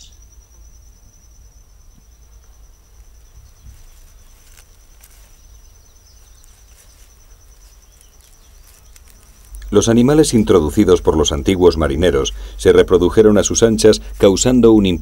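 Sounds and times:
insect trilling: 0.0s - 15.0s
faint clicks: 7.6s - 9.7s.

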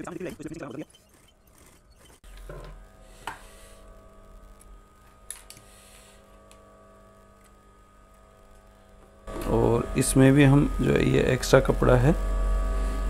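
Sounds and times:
sewing machine motor humming: 0.0s - 6.3s.

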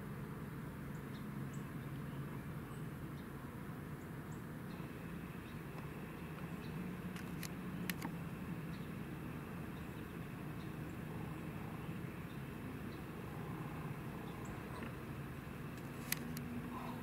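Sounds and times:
faint outdoor background noise: 0.0s - 17.0s
sharp clicks: 7.1s - 8.2s, 15.8s - 16.5s.

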